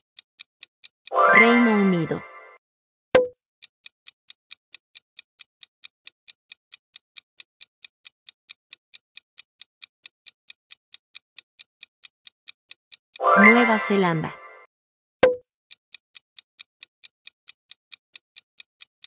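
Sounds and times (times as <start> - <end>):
clock ticking: 0.0 - 2.6, 3.2 - 19.0.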